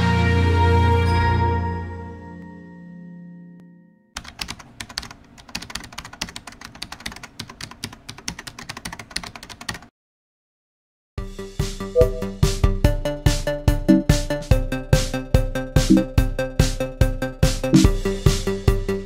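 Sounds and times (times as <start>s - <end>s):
rapid keyboard typing: 4.2s - 9.9s
electronic music with steady beat: 11.9s - 18.9s
music sting: 12.0s - 12.6s.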